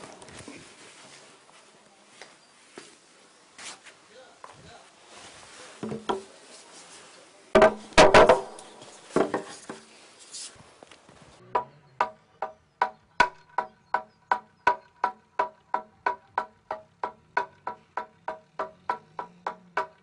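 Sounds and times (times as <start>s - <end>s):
wooden board knocking and clattering: 5.8s - 6.3s, 7.6s - 9.8s, 11.6s - 20.0s
mallet striking wooden board: 7.6s - 8.6s, 11.6s - 20.0s.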